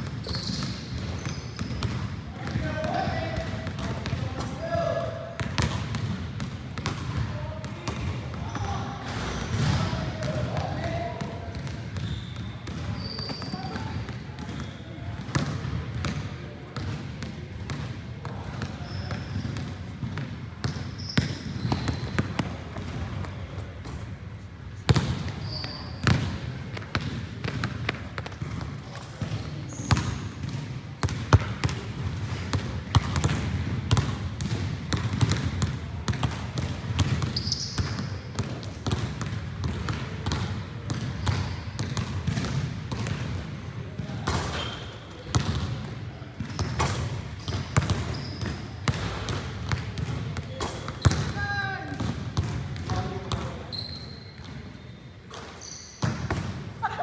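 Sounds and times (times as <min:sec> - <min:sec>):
basketballs bouncing on gym floor: 0:00.0 - 0:24.2, 0:24.8 - 0:57.0
shoe squeaks: 0:00.2 - 0:01.8, 0:12.0 - 0:13.9, 0:18.8 - 0:19.6, 0:20.9 - 0:22.4, 0:25.3 - 0:26.2, 0:28.9 - 0:30.3, 0:37.3 - 0:38.2, 0:44.5 - 0:45.1, 0:47.4 - 0:48.7, 0:53.7 - 0:56.1.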